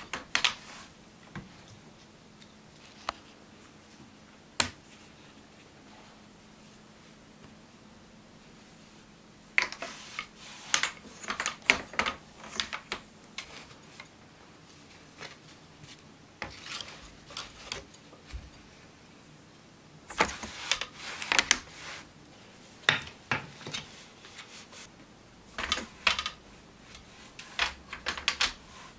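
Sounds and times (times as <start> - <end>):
wooden loom clicking and knocking: 0.0 - 0.7, 9.6 - 14.1, 25.5 - 28.9.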